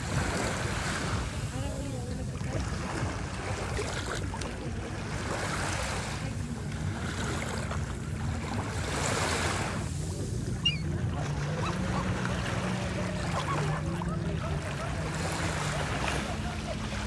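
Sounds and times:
surf washing onto beach: 0:00.0 - 0:17.0
wind rumbling on microphone: 0:00.0 - 0:17.0
high bird call: 0:10.6 - 0:10.9.

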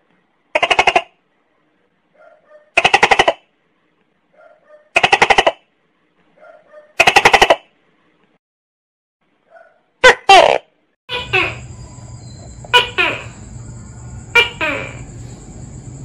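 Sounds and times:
gecko rattling calls: 0:11.2 - 0:15.6.

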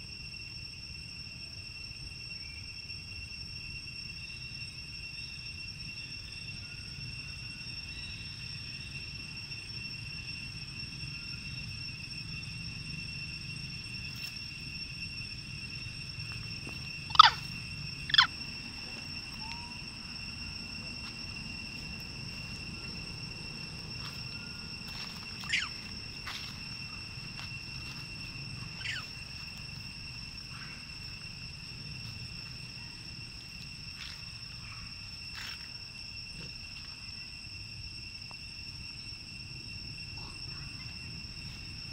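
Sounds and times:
high two-toned insect drone: 0:00.0 - 0:41.9
sharp short animal calls: 0:17.1 - 0:17.4, 0:25.5 - 0:25.7, 0:28.8 - 0:29.1.

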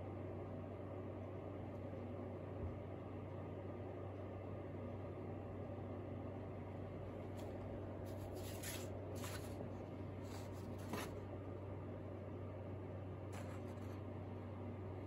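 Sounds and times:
steady low hum: 0:00.0 - 0:15.0
paper sliding and rustling: 0:07.4 - 0:09.6, 0:10.2 - 0:11.2.

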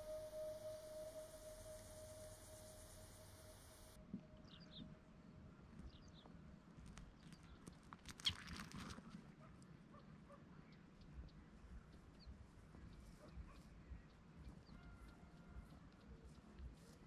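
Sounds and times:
faint high chirps: 0:00.0 - 0:04.8.

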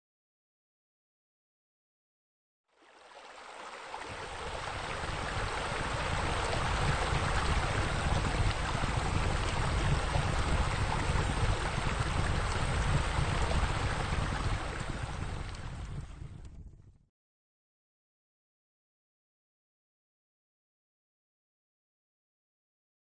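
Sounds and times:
running splashing water: 0:02.8 - 0:16.2.

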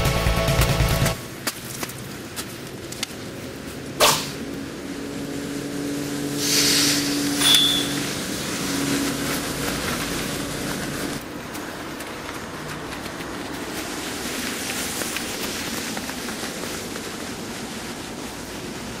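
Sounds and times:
sharp sword strike: 0:04.0 - 0:04.4, 0:06.5 - 0:08.0
sword whoosh: 0:06.4 - 0:08.1
high metallic ring: 0:07.4 - 0:08.1.

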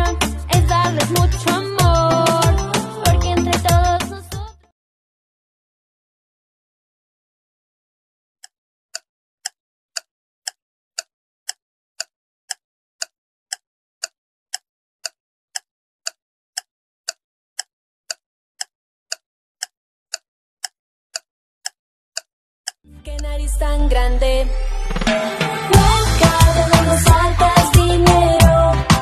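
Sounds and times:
countdown timer ticking: 0:00.0 - 0:04.6, 0:15.0 - 0:29.0.

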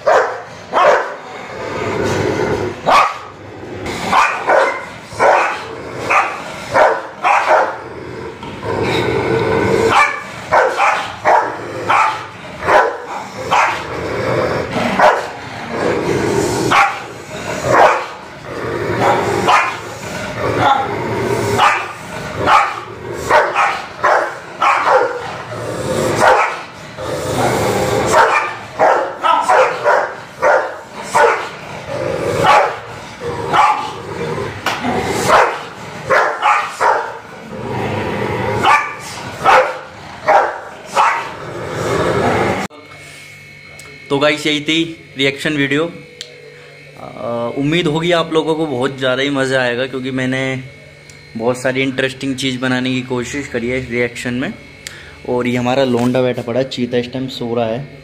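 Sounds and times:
dogs barking aggressively: 0:00.0 - 0:42.7.

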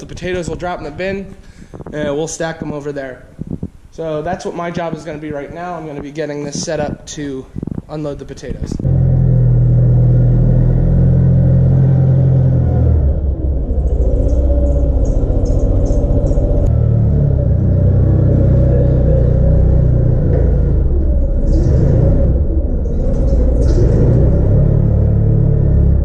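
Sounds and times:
forklift engine running: 0:08.9 - 0:26.0.

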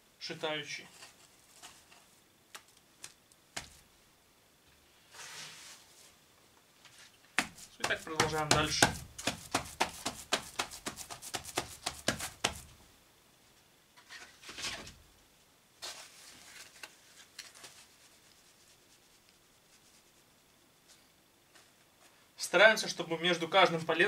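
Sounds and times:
mortar scraping: 0:07.4 - 0:12.7
rapid knocks on wood: 0:07.4 - 0:12.8.

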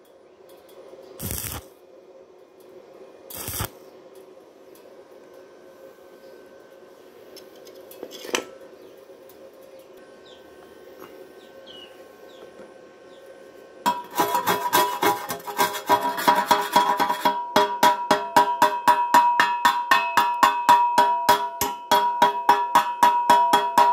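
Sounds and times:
chipping hammer on steel tube: 0:13.9 - 0:23.9
hollow tube ringing: 0:15.9 - 0:23.9.

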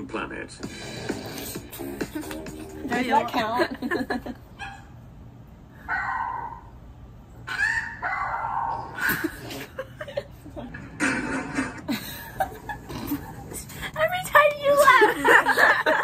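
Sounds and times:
dog calling: 0:04.6 - 0:05.0, 0:05.9 - 0:06.8, 0:07.4 - 0:09.6.

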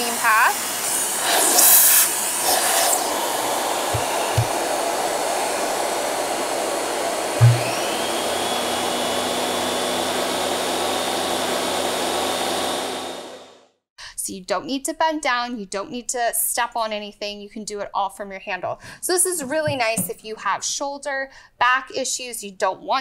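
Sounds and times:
air rush through hose: 0:00.0 - 0:08.2
vacuum cleaner running: 0:00.0 - 0:13.6
brush roll motor whine: 0:00.6 - 0:13.6
wand knocking: 0:03.9 - 0:04.6, 0:07.4 - 0:07.9
wand thumping into powerhead: 0:07.4 - 0:07.7.

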